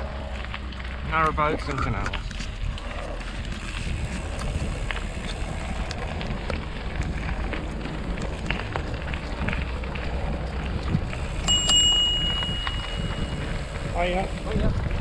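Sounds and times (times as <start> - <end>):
bike tyres rolling on dirt: 0.0 - 15.0
wind on microphone: 1.6 - 15.0
bicycle bell ringing: 11.3 - 13.7.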